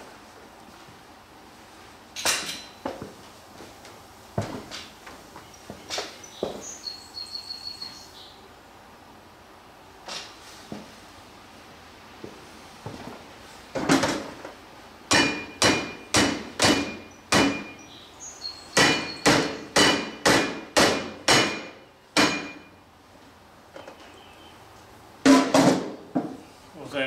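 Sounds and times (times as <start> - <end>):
hammer striking metal: 15.1 - 17.8, 18.7 - 22.7.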